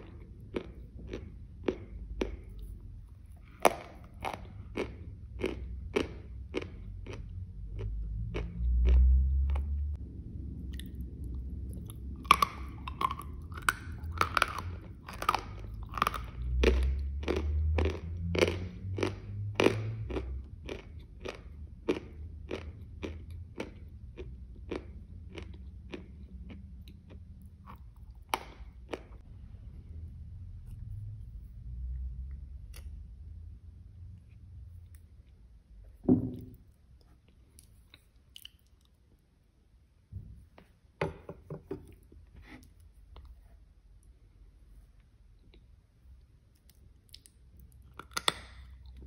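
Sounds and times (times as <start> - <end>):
person chewing with mouth closed: 0.0 - 9.7, 10.6 - 29.3, 36.9 - 39.2
quiet chewing: 0.0 - 9.7, 36.8 - 39.3.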